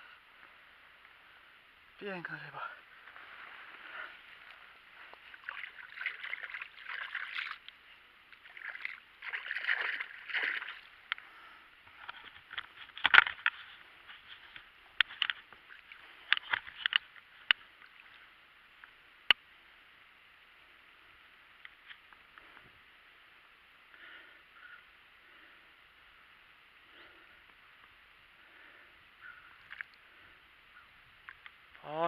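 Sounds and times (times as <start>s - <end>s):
river water splashing: 3.2s - 18.8s.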